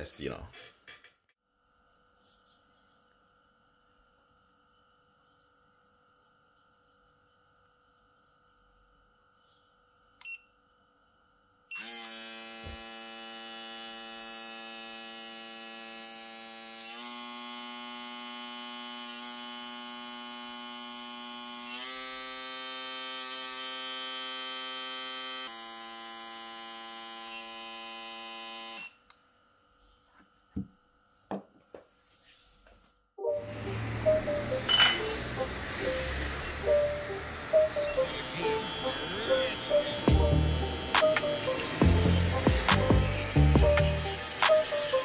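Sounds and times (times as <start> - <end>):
electric shaver buzzing whine: 11.6 - 29.1, 33.3 - 45.0.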